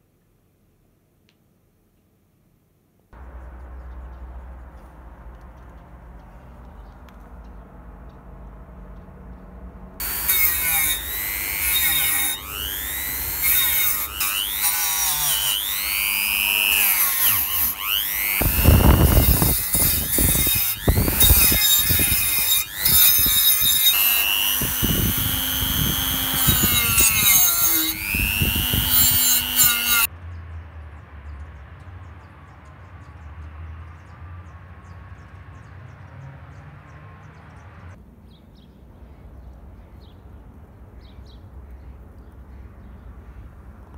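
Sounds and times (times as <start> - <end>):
faint low background noise: 0.0 - 10.0
rotary tool wire wheel whirring: 10.0 - 30.1.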